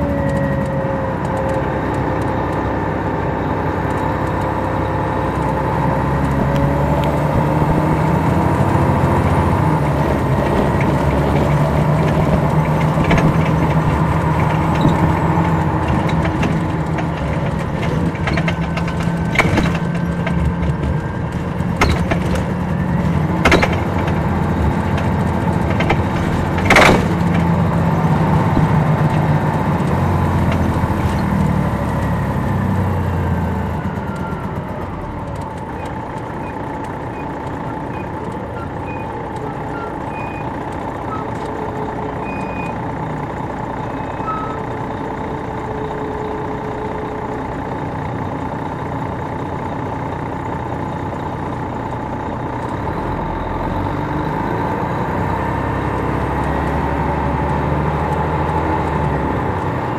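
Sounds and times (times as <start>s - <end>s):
bus diesel engine running: 0.0s - 59.9s
sharp knocks and rattles: 6.2s - 32.2s.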